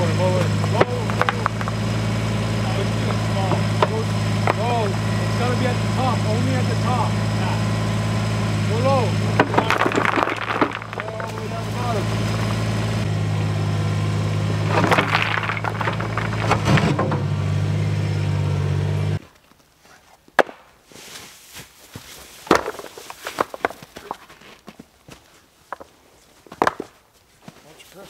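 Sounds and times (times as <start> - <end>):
small engine running: 0.0 - 19.2
rocks clattering: 0.4 - 2.0, 9.3 - 13.0, 14.5 - 17.2, 22.4 - 24.4
footsteps on rocks and snow: 9.6 - 12.7, 14.7 - 16.8, 19.2 - 28.0.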